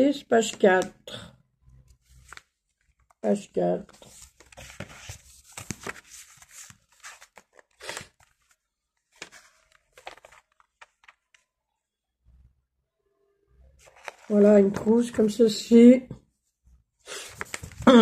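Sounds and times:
paper pages rustling: 1.9 - 11.4, 13.8 - 15.2, 17.2 - 18.0.

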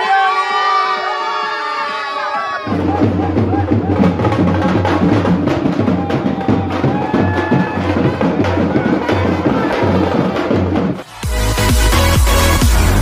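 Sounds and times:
music with drum beat and bass: 2.7 - 13.0.

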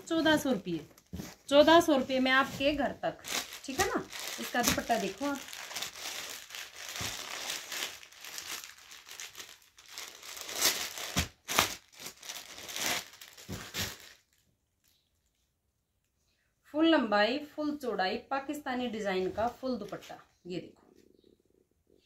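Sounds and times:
plastic packaging crinkling: 0.0 - 15.4.

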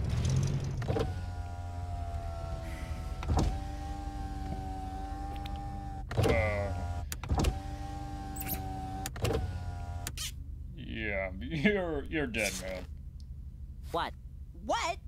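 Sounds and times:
electric window motor whining: 0.6 - 10.4.

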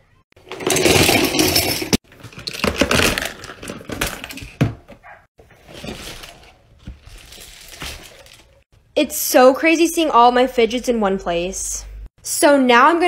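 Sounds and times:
plastic toys clattering: 0.4 - 8.6.

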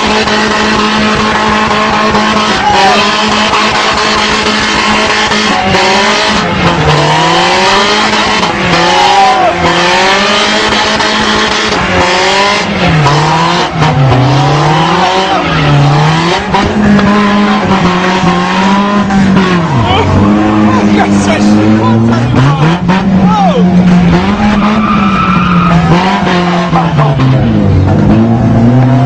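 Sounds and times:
car engine revving hard: 0.0 - 29.0
tyres squealing: 12.9 - 27.1.

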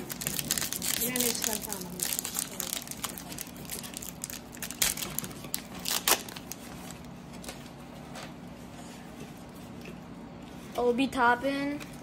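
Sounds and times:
card pack wrapper crinkling: 0.0 - 7.6.

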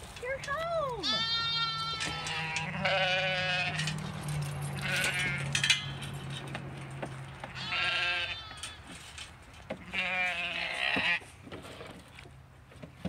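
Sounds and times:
lambs bleating: 1.0 - 3.9, 4.8 - 5.5, 7.5 - 8.7, 9.8 - 11.2.

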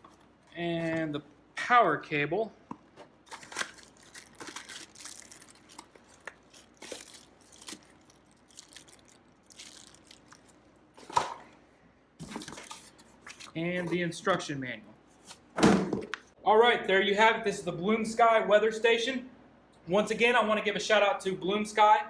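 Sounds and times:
plastic bag crinkling: 3.2 - 10.8.

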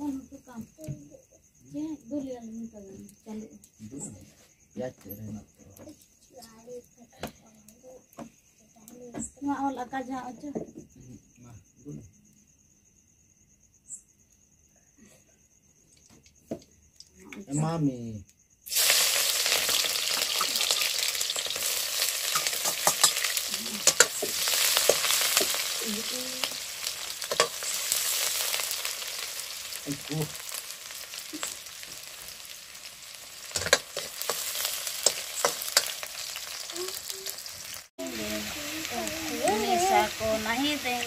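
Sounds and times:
onions sizzling in hot oil: 18.6 - 41.0
metal ladle scraping a pan: 21.4 - 25.6, 33.5 - 36.7.

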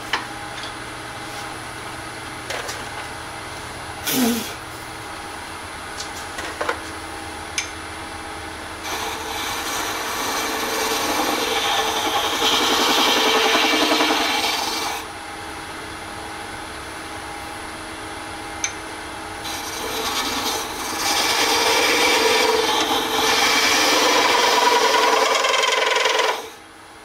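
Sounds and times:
tool scraping resin on lathe: 8.8 - 15.1, 19.4 - 26.6
lathe humming: 8.8 - 15.2, 19.4 - 26.6.

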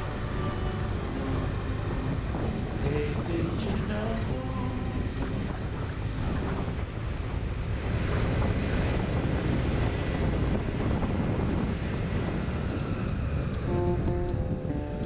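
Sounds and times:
faint scooter engine and tyres: 0.0 - 3.6, 11.1 - 15.0
wind rush on microphone: 0.0 - 15.0.

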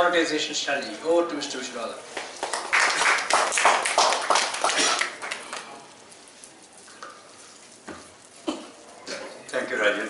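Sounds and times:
low room noise: 0.0 - 10.0
audience applauding: 2.4 - 5.9.

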